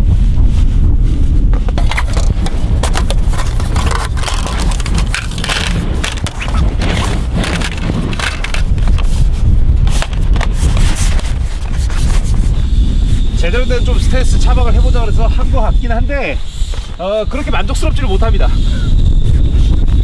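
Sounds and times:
wind rumble on microphone: 0.0s - 20.0s
crunching handling noises: 1.6s - 12.3s.

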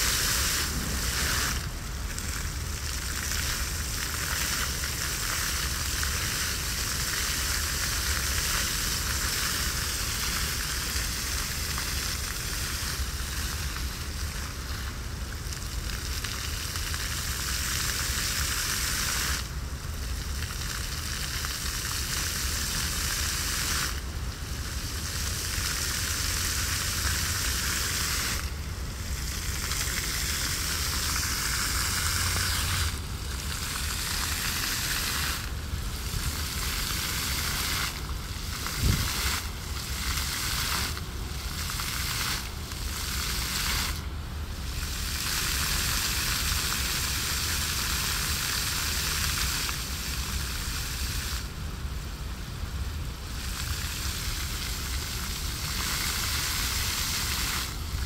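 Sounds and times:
fountain water jets splashing: 0.0s - 58.0s.

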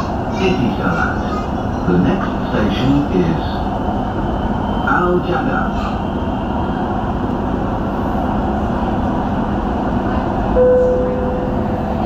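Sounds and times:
steady whine: 10.6s - 12.0s.

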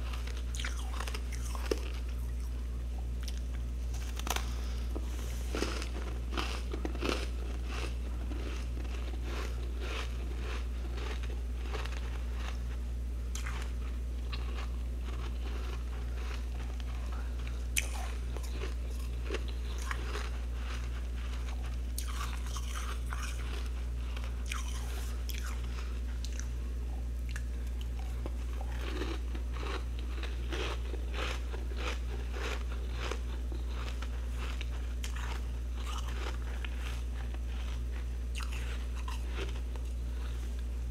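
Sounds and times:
steady low hum: 0.0s - 40.9s
frost crunching: 3.2s - 12.6s, 27.7s - 40.7s.

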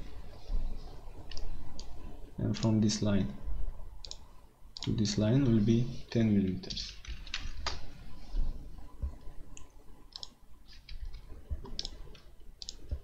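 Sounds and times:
faint low rumble: 0.0s - 13.0s
mouse and keyboard clicking: 9.6s - 13.0s.

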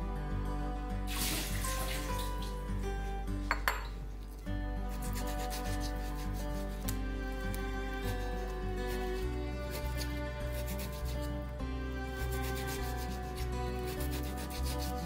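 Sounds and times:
background music: 0.0s - 15.0s
knife sawing through meat: 4.9s - 11.4s, 12.2s - 15.0s
knife scraping cutting board: 4.9s - 11.4s, 12.2s - 15.0s.

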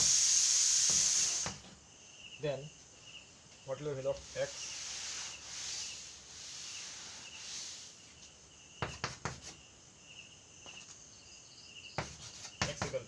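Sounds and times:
duster rubbing blackboard: 0.0s - 1.7s, 4.0s - 8.1s, 8.8s - 9.6s, 12.0s - 13.0s
chalk tapping and scraping: 0.0s - 1.8s, 4.0s - 9.6s, 12.0s - 13.0s.

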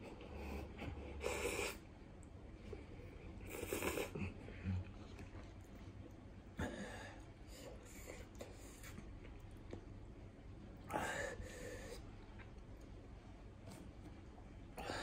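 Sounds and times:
man eating noodles: 3.4s - 5.7s.

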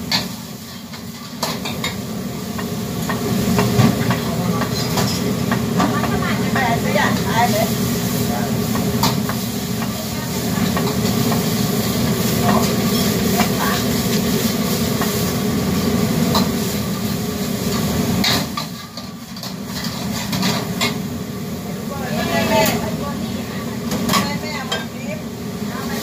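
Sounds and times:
food sizzling in a wok: 0.0s - 26.0s
gas burner rumbling: 0.0s - 26.0s
metal ladle scraping a wok: 18.3s - 21.0s.

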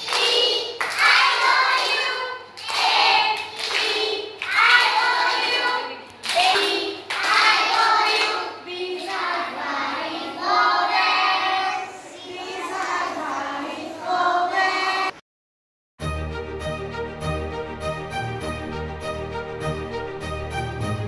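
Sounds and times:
children singing together: 0.0s - 15.2s.

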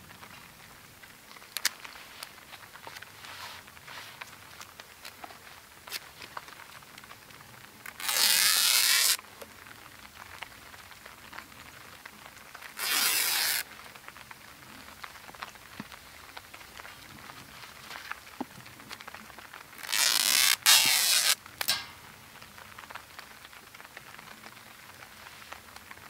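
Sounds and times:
loud ripping: 7.8s - 9.2s, 12.6s - 14.0s, 14.6s - 22.0s
handling noise: 19.8s - 22.2s.

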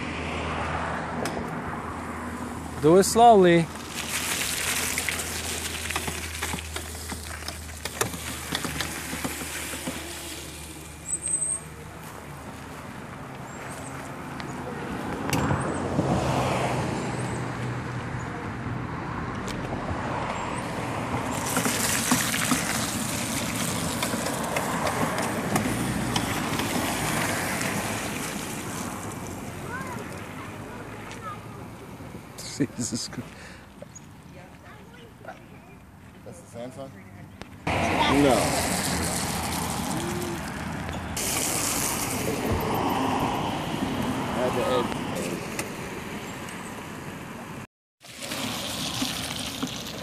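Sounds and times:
tyres in wet mud: 2.6s - 17.4s, 19.4s - 36.3s, 37.0s - 50.0s
electric dirt bike motors whirring: 3.8s - 11.7s, 21.2s - 28.5s, 37.7s - 43.4s.

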